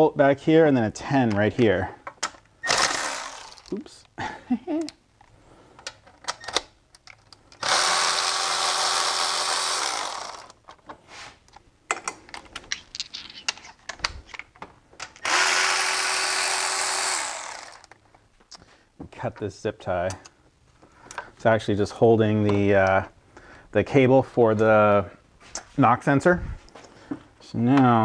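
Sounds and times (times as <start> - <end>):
electric ratchet running: 2.7 - 3.7, 7.6 - 10.5, 15.2 - 17.9.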